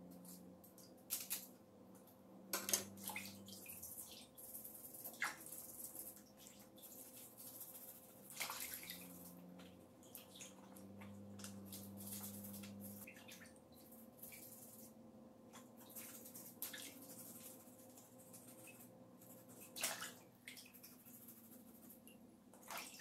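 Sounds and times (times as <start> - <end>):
faint low hum: 0.0 - 23.0
water splashes and drips: 2.6 - 4.4, 5.0 - 14.9, 15.5 - 17.6, 19.5 - 21.0, 22.6 - 23.0
brush scrubbing crab shells: 2.9 - 13.1, 13.8 - 15.0, 15.7 - 19.8, 20.6 - 22.1.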